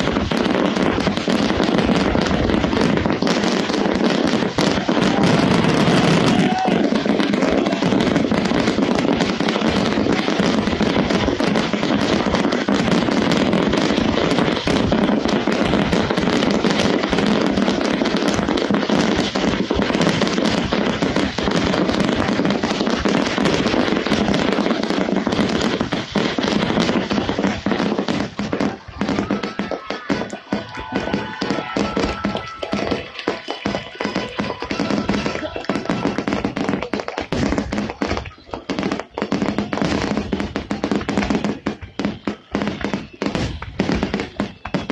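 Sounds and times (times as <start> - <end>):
fireworks crackling and banging: 0.0 - 44.9.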